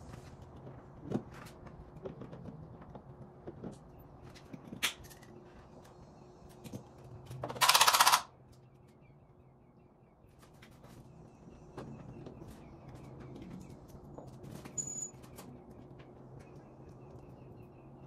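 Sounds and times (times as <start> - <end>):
rapid ratchet clicking: 7.6 - 8.3.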